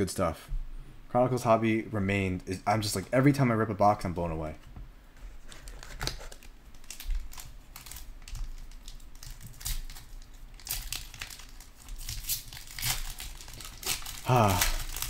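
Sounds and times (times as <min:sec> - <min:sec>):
foil wrapper crinkling: 0:05.5 - 0:15.0.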